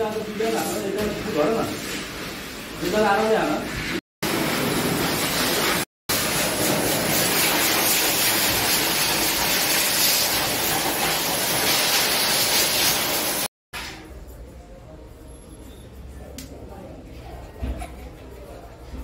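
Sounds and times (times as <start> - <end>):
pet dryer blowing air: 4.2 - 13.5.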